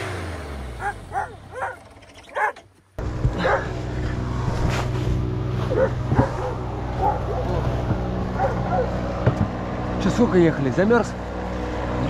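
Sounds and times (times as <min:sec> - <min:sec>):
low engine drone: 0:00.0 - 0:12.0
dog barking: 0:00.8 - 0:02.6, 0:03.4 - 0:03.8, 0:05.7 - 0:07.7, 0:08.3 - 0:09.0.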